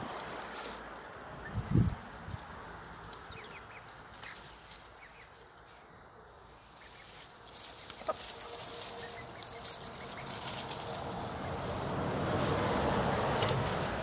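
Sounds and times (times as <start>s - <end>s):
hens clucking: 6.3s - 14.0s
rustling: 6.5s - 14.0s.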